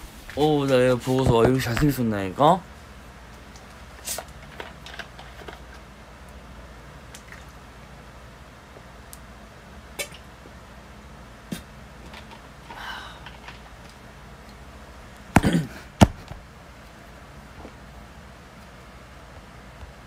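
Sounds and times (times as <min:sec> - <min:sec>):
low room hum: 0:00.0 - 0:20.0
sharp knocks: 0:15.4 - 0:16.3.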